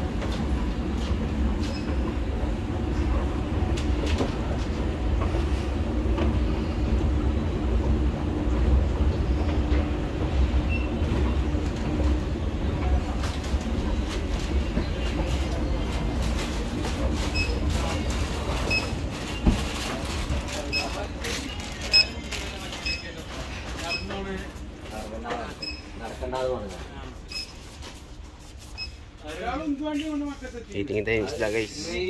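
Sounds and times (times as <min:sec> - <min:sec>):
escalator mechanical rumble: 0:00.0 - 0:20.8.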